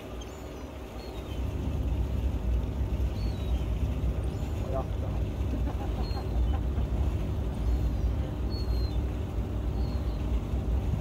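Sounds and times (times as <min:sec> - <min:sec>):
ship engine rumbling: 0:00.0 - 0:11.0.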